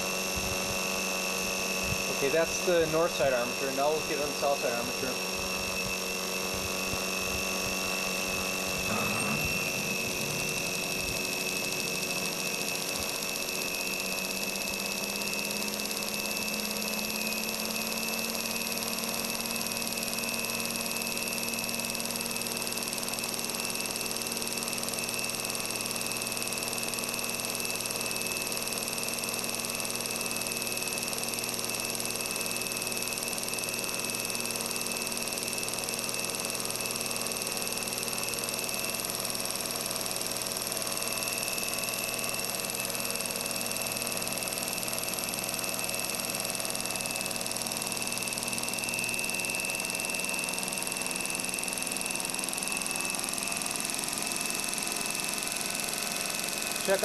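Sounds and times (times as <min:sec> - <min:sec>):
machine whine of spinning armatures: 0:00.0 - 0:57.0
low hum rising in pitch: 0:05.5 - 0:13.4.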